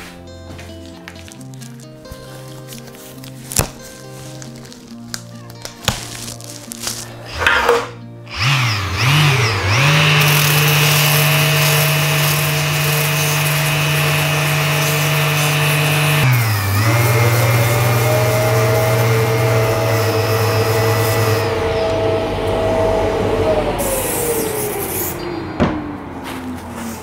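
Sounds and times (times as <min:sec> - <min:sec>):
rotary sander running: 0:06.8 - 0:25.2.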